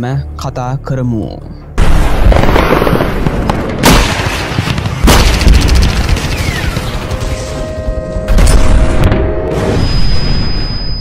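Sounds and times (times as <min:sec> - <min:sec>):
heavy booms and explosions: 0:01.8 - 0:11.0
rapid gunfire burst: 0:02.3 - 0:07.4
falling whistle: 0:09.6 - 0:11.0.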